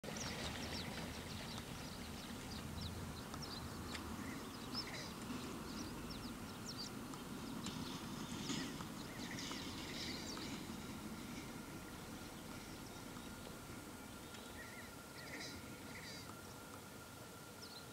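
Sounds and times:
low steady rumble: 0:00.1 - 0:17.9
ducks chirping and calling: 0:00.2 - 0:13.3.

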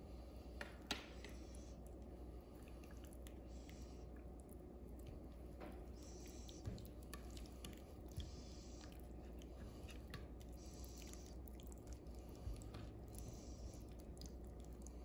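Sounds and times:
low steady hum: 0:00.0 - 0:15.0
wet squishing of hands on meat: 0:00.8 - 0:15.0.

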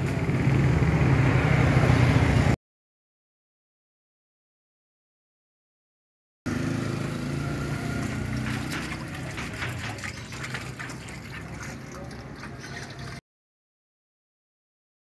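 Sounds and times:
engine idling: 0:06.5 - 0:13.2
irregular clicks and clatter: 0:08.3 - 0:13.2.

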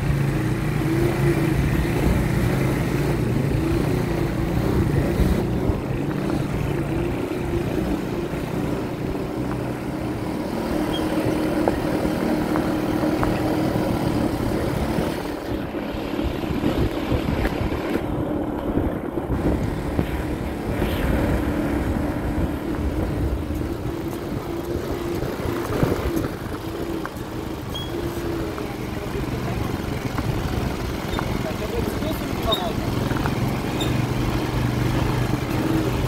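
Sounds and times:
vehicle engine running: 0:00.0 - 0:36.0
low rumbling background: 0:11.5 - 0:27.6.

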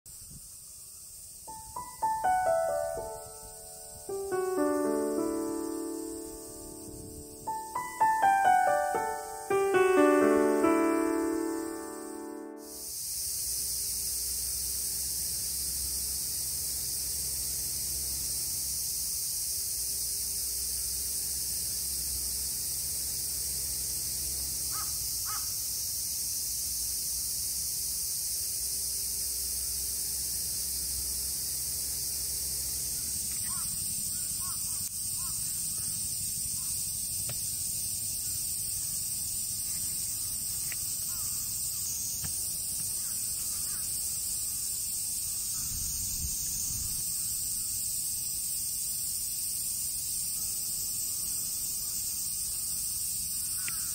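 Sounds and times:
insects chorus: 0:00.1 - 0:53.9
crows cawing: 0:24.7 - 0:25.5, 0:41.1 - 0:41.5, 0:43.0 - 0:43.9, 0:53.5 - 0:53.9.

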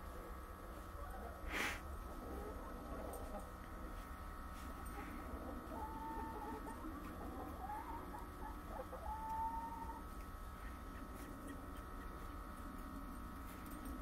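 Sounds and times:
chickens calling: 0:04.6 - 0:13.3.

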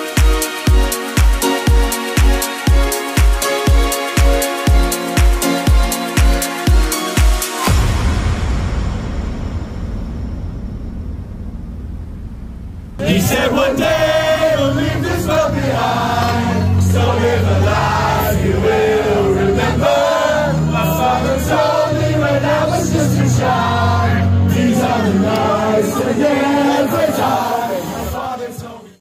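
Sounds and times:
loud amplified backing music: 0:00.0 - 0:08.3, 0:13.0 - 0:28.7
crowd singing and shouting: 0:13.0 - 0:29.0.

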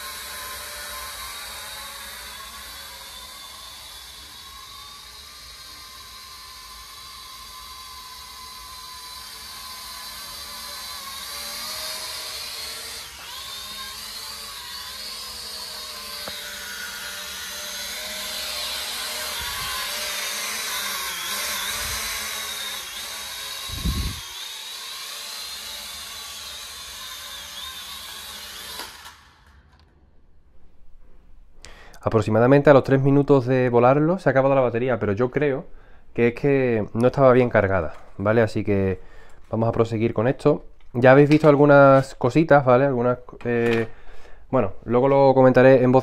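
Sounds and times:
drone motors whining: 0:00.0 - 0:29.9.

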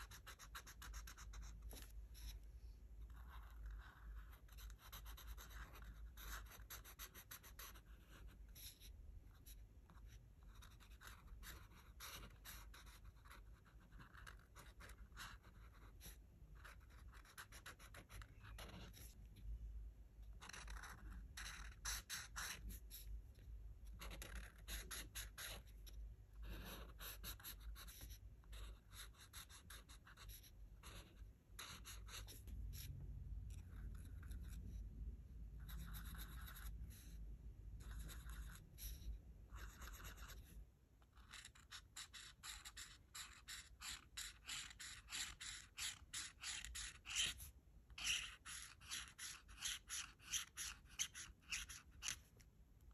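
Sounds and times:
marker strokes on paper: 0:00.0 - 0:19.3, 0:20.4 - 0:23.2, 0:41.2 - 0:52.4.

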